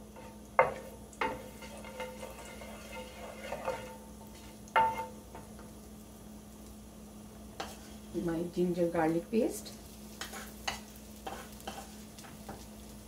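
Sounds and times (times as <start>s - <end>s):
seeds sizzling in oil: 0.0s - 13.0s
spoon knocking against pan: 4.8s - 5.5s.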